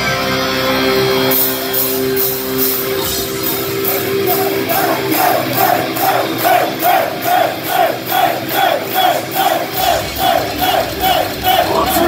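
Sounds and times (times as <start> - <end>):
live heavy metal band: 0.0 - 12.0
crowd shouting in time: 3.6 - 12.0.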